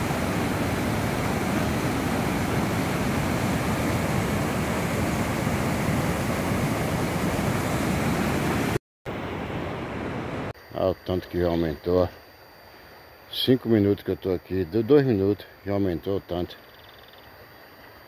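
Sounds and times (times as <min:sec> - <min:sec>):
floodwater rushing over rocks: 0:00.0 - 0:08.8.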